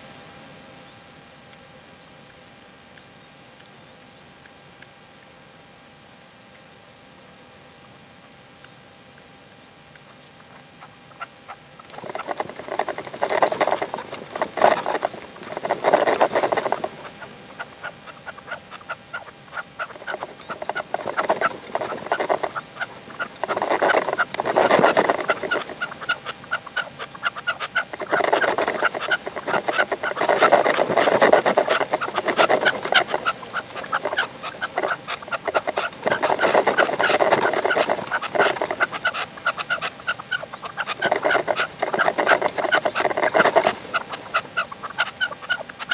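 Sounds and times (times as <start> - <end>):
partridges chattering calls: 10.1 - 45.9.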